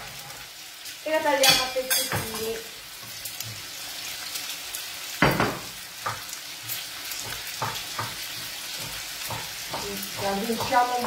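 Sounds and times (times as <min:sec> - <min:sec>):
meat and garlic sizzling in a pan: 0:00.0 - 0:11.0
knife chopping on a wooden board: 0:05.2 - 0:11.0.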